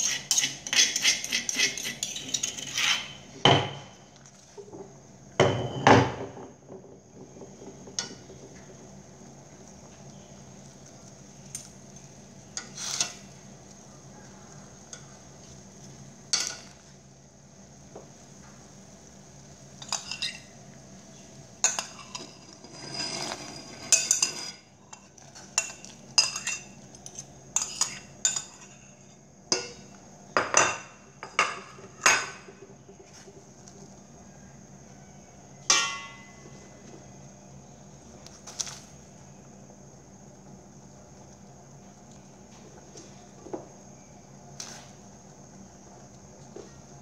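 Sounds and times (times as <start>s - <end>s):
metal spoon scraping pot and plate: 0.0s - 4.1s, 12.6s - 13.3s, 19.8s - 20.5s, 21.6s - 29.0s
faint hum: 1.2s - 47.0s.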